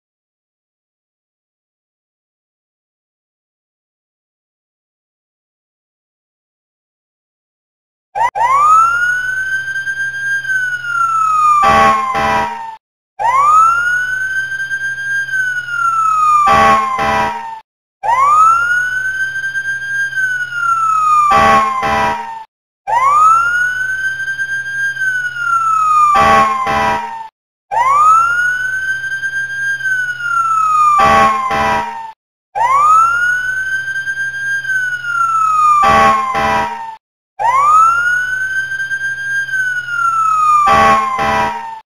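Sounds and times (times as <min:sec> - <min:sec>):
fire truck siren wailing: 0:08.2 - 0:41.8
short horn blasts: 0:11.6 - 0:12.6, 0:16.4 - 0:17.5, 0:21.3 - 0:22.3, 0:26.1 - 0:27.1, 0:31.0 - 0:32.0, 0:35.8 - 0:36.8, 0:40.6 - 0:41.6.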